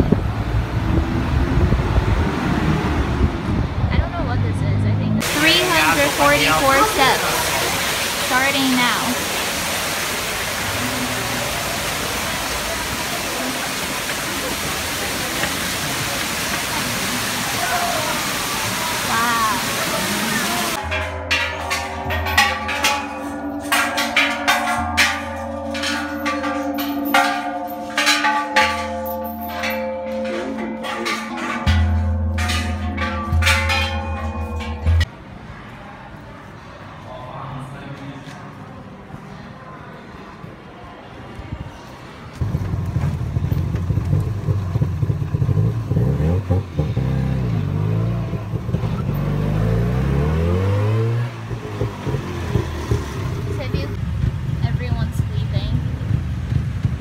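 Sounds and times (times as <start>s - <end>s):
temple bells ringing: 5.2s - 9.2s, 20.7s - 35.1s
tuk-tuk engine running: 42.3s - 57.0s.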